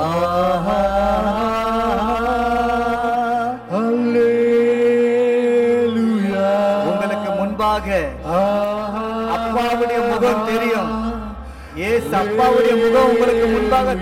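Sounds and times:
person singing chant-like melody: 0:00.0 - 0:14.0.

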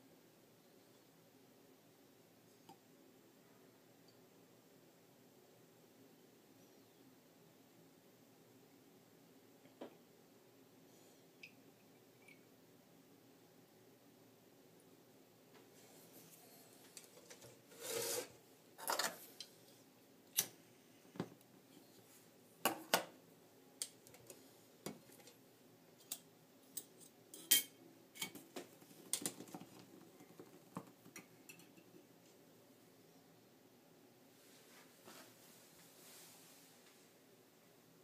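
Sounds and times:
metal scrapes: 0:17.2 - 0:19.2.

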